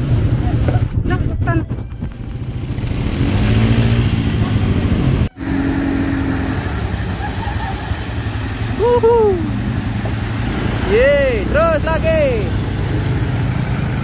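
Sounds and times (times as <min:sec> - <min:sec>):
quad bike engine running: 0:00.0 - 0:14.0
person cheering: 0:08.7 - 0:09.6.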